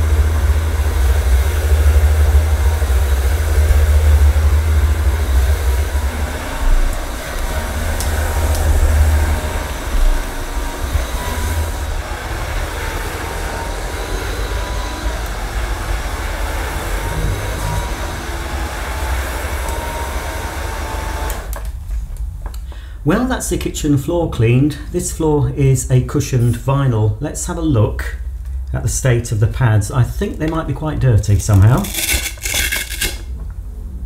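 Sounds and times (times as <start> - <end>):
floor cleaner running: 0.0 - 21.7.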